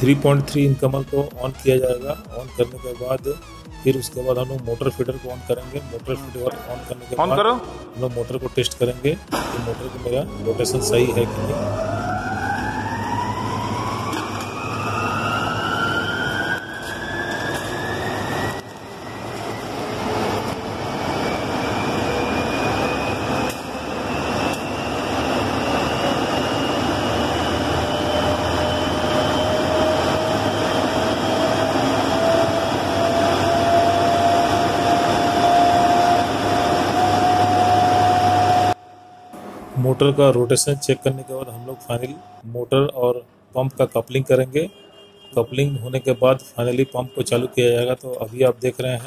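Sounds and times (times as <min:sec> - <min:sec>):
steady low hum: 0:00.0 - 0:13.9
electric motor whine rising: 0:10.0 - 0:39.7.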